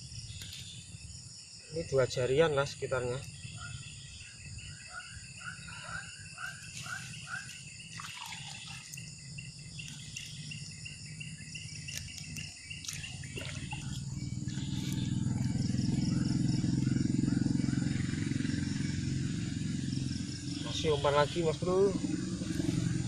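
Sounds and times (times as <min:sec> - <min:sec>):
insects trilling: 0:00.0 - 0:23.0
low rumbling drone: 0:08.4 - 0:23.0.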